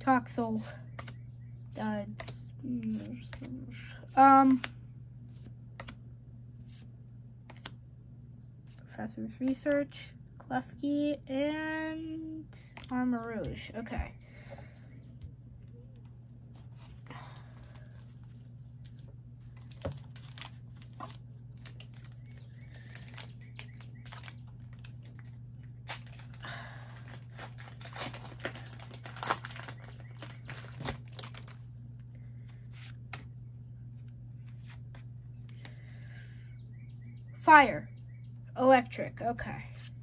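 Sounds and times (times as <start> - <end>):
foil wrapper tearing and crinkling: 17.7 - 31.7.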